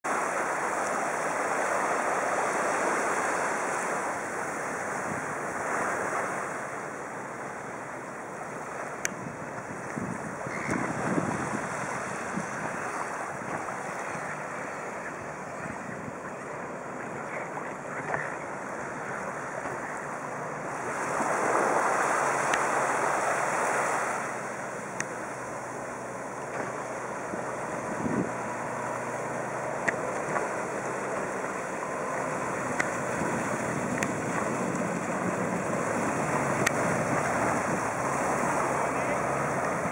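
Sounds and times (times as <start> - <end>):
rush of water: 0.0 - 39.9
faint sharp ticks: 9.0 - 9.2
wind noise: 9.1 - 18.1, 27.2 - 29.3, 32.0 - 39.9.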